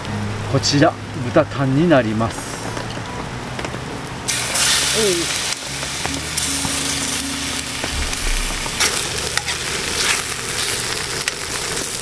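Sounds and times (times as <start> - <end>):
meat sizzling in a pan: 4.3 - 12.0.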